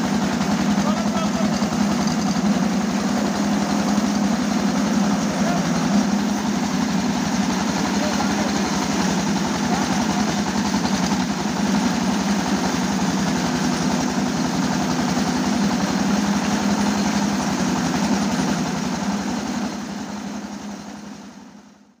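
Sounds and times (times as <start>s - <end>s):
diesel engine chugging: 0.0s - 22.0s.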